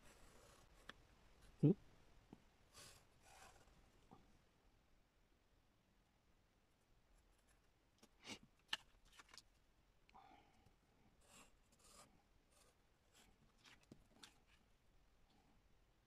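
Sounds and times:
pencil scratching: 0.0 - 0.9, 2.7 - 3.8, 11.2 - 14.6.

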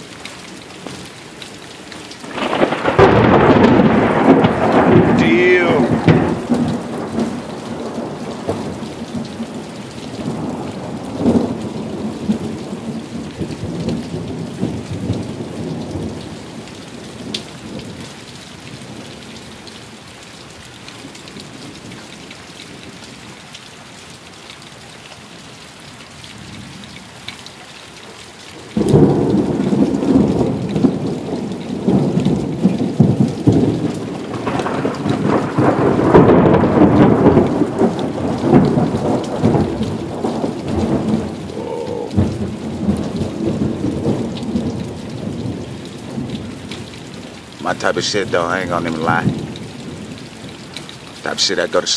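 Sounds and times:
steady rain: 0.0 - 51.9
thunder rumbling: 2.2 - 16.6, 28.8 - 46.6, 47.2 - 50.2.

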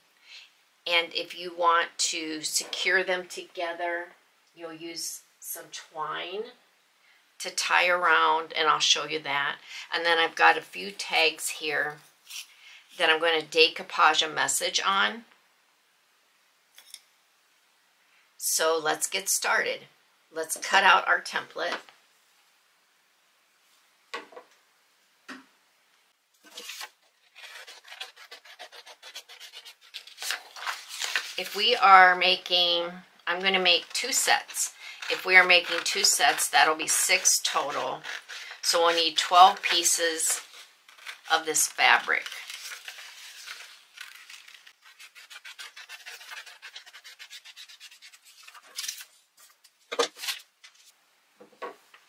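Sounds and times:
scissors snipping paper: 33.8 - 49.0.

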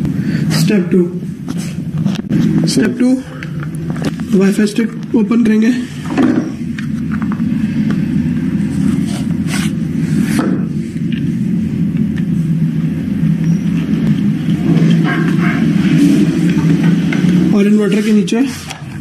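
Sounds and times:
low machine hum: 0.0 - 19.0.

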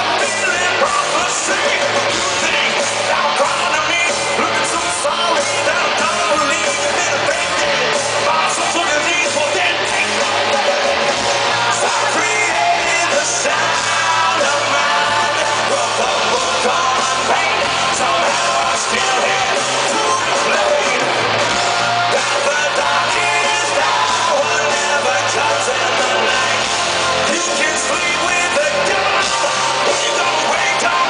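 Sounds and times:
person singing into microphone: 0.0 - 21.5, 22.1 - 31.0
live rock band playing: 0.0 - 31.0.

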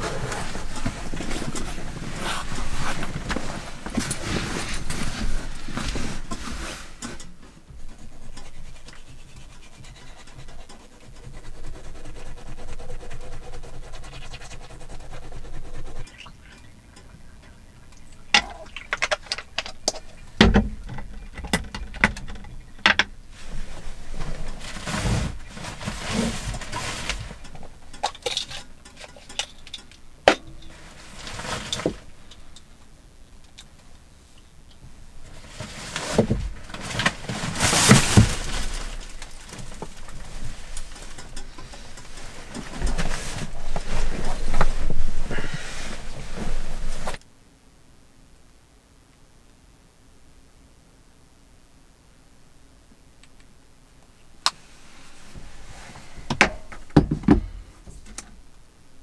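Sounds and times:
toothbrush scrubbing: 8.0 - 16.2.

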